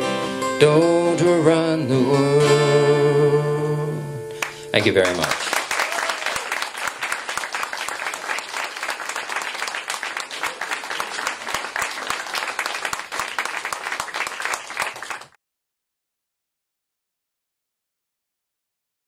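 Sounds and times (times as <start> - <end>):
audience applauding: 4.4 - 15.4.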